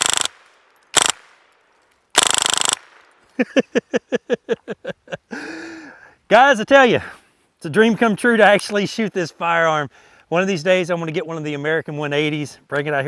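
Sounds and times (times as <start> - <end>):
rifle firing bursts: 0.0 - 1.4, 2.1 - 3.0.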